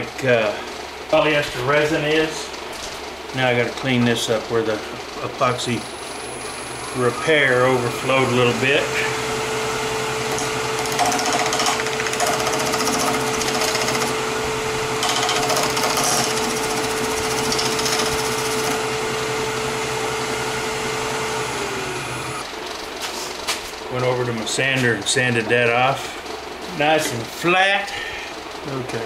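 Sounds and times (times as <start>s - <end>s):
wood lathe whine and hum: 5.5s - 22.5s
turning tool scraping wood: 10.3s - 14.2s, 15.0s - 18.8s.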